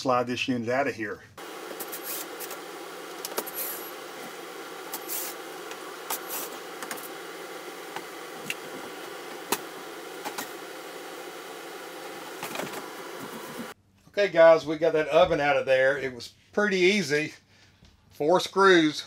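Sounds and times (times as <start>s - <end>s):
cordless drill hum: 1.4s - 13.8s.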